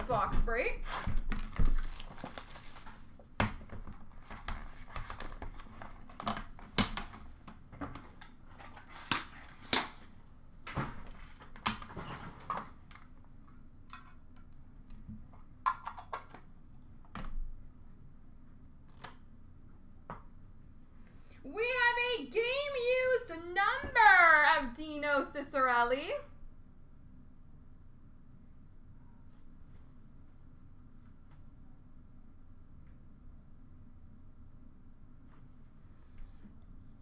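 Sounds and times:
card pack wrapper crinkling: 0:00.9 - 0:03.2.

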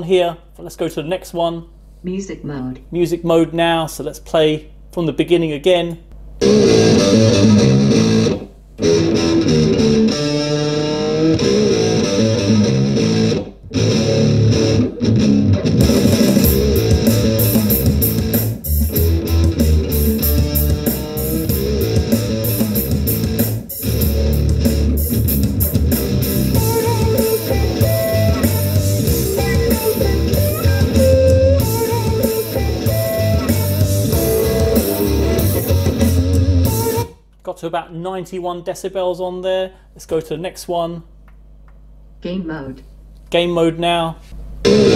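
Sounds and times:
guitar music through speakers: 0:06.4 - 0:37.2, 0:44.6 - 0:44.9.

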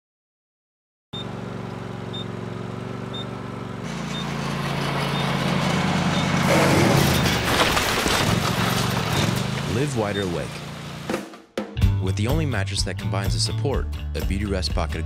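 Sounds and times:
lawn mower engine running: 0:01.2 - 0:11.3.

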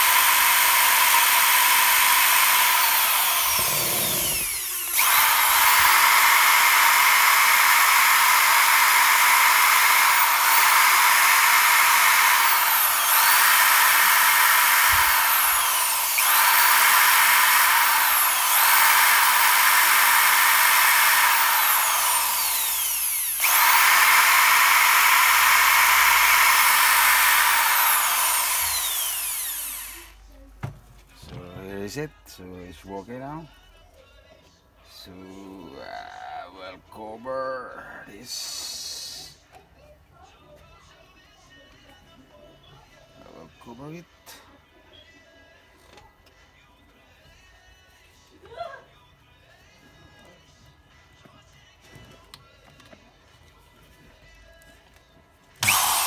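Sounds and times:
drill motor whining: 0:00.0 - 0:30.2, 0:55.6 - 0:56.0.

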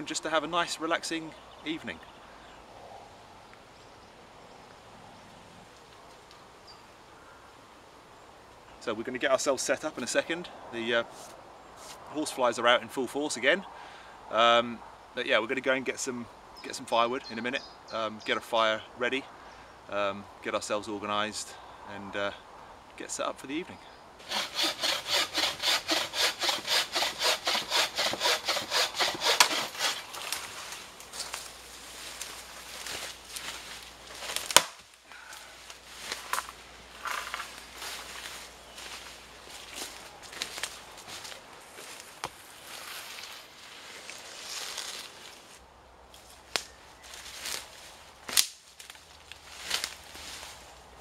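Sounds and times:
leaves rustling: 0:11.0 - 0:12.4, 0:24.1 - 0:51.0
hand saw cutting wood: 0:24.2 - 0:30.4
footsteps through undergrowth: 0:29.8 - 0:51.0
wood cracking: 0:32.1 - 0:34.9
sharp snaps of stems: 0:34.2 - 0:35.0, 0:46.1 - 0:46.8, 0:48.2 - 0:50.0.

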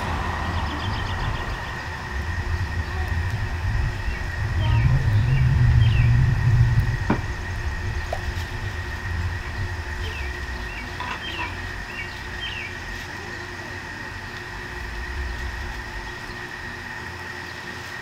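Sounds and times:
passing vehicle rumble: 0:00.0 - 0:12.9
birds chirping: 0:00.0 - 0:18.0
steady high whine: 0:00.0 - 0:18.0.

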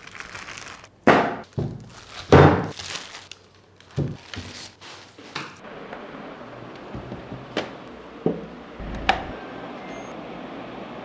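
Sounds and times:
plastic wrapping rustling: 0:00.0 - 0:05.5.

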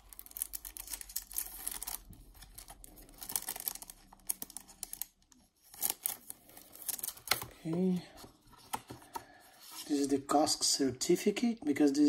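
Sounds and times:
plastic sleeve crinkling: 0:00.0 - 0:07.6.

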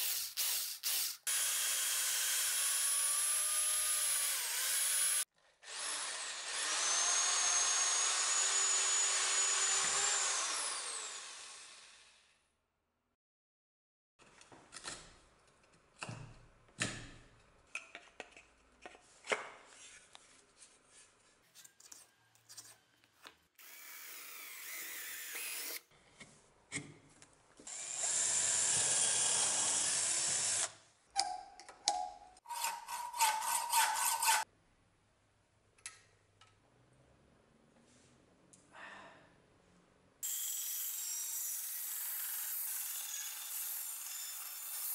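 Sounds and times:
cordless drill boring through wood: 0:00.5 - 0:12.2, 0:23.6 - 0:25.8, 0:27.7 - 0:30.8, 0:40.2 - 0:44.9.

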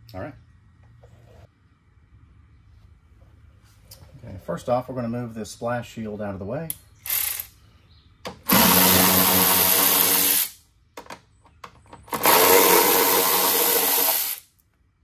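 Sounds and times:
cordless power tool running: 0:08.5 - 0:10.5, 0:12.1 - 0:14.4.

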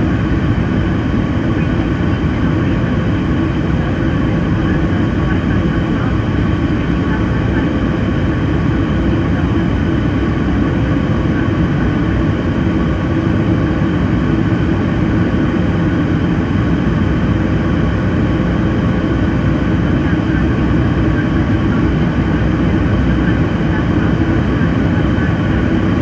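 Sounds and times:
jet engine hum: 0:00.0 - 0:26.0.

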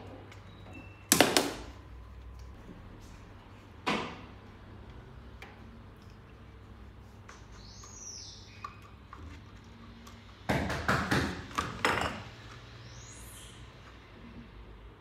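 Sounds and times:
faint high chirp: 0:00.3 - 0:01.1
bottles clattering on wooden table: 0:11.5 - 0:12.4.

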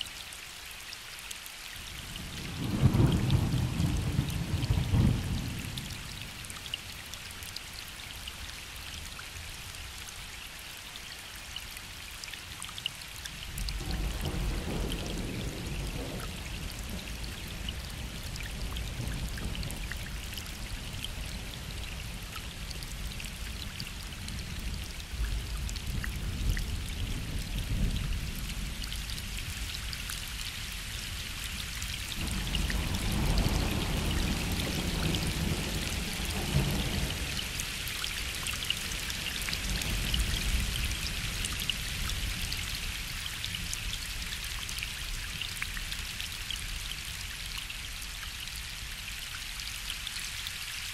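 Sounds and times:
gentle rain falling onto lake: 0:00.0 - 0:50.9.

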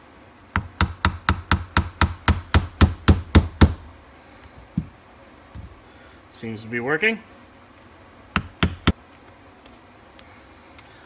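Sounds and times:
hammer tapping on metal: 0:08.4 - 0:09.0.

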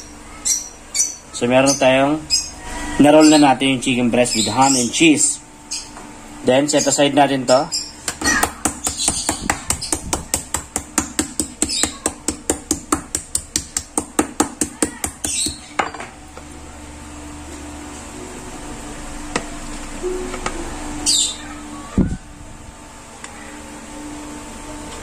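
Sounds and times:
low steady hum: 0:00.0 - 0:25.0
meat mallet pounding: 0:08.0 - 0:15.9.

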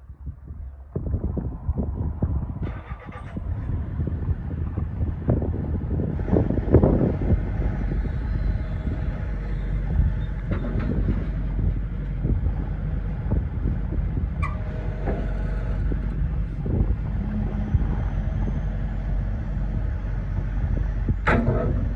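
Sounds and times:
excavator diesel engine running: 0:01.7 - 0:21.9
hydraulics working: 0:02.3 - 0:21.9
clunks and knocks: 0:09.9 - 0:12.4, 0:14.4 - 0:17.0, 0:21.1 - 0:21.9.

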